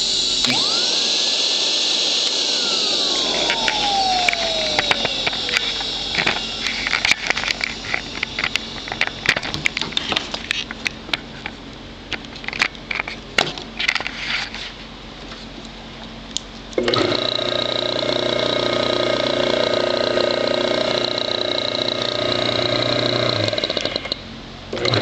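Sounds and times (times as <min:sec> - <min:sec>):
motor running with high whine: 0:00.0 - 0:11.5, 0:16.8 - 0:24.2.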